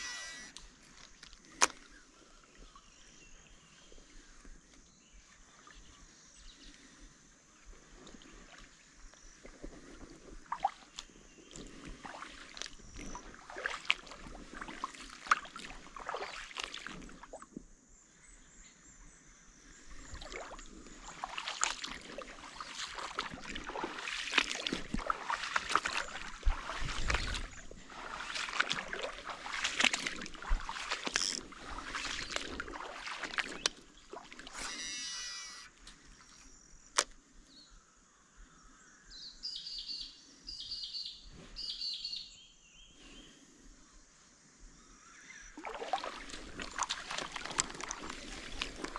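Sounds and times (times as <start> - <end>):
kayak paddle splashing in water: 8.0 - 17.5, 20.0 - 37.1, 45.5 - 48.9
water dripping: 21.2 - 34.6, 45.6 - 48.9.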